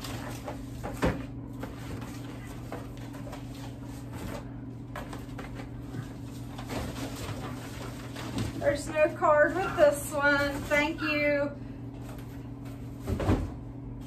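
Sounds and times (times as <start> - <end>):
steady low hum: 0.0 - 14.0
cardboard knocking and rustling: 13.0 - 13.6.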